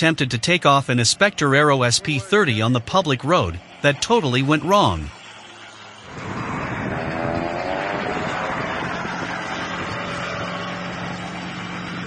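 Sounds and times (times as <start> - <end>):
propeller engine throttling up: 0.8 - 12.0
steady rushing noise: 0.9 - 12.0.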